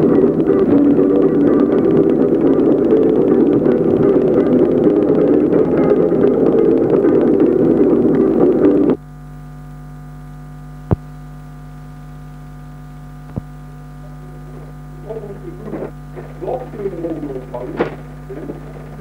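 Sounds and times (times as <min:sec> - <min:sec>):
electrical mains hum: 0:00.0 - 0:19.0
faint voices: 0:14.0 - 0:19.0.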